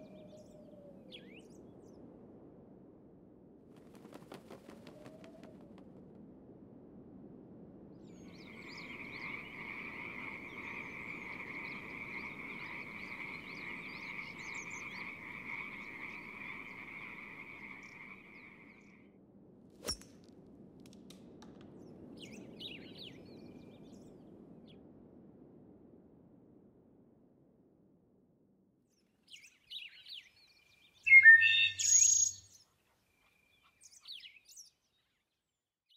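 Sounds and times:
faint bird chirps: 0:00.0 - 0:02.0, 0:08.1 - 0:19.0, 0:29.3 - 0:35.2
frogs trilling: 0:08.4 - 0:19.0.

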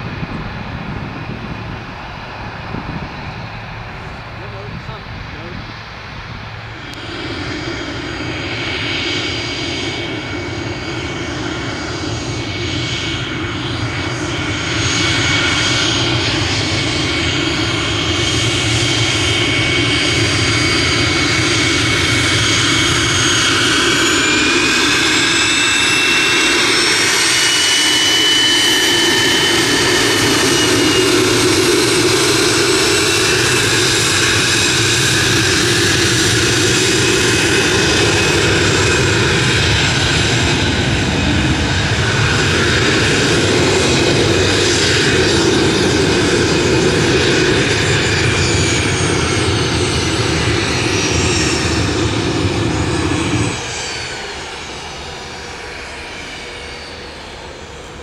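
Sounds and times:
jet engine rush and whine: 0:00.0 - 0:58.0.

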